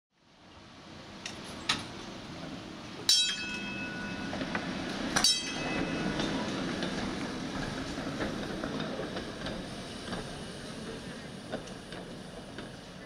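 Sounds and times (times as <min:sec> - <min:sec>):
streetcar rumbling past: 0:00.3 - 0:13.0
sharp metallic clangs: 0:03.1 - 0:04.2.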